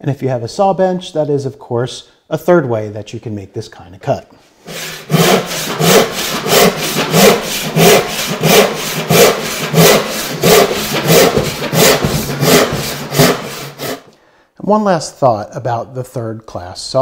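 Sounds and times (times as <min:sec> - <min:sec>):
hand saw cutting wood: 0:04.6 - 0:14.1.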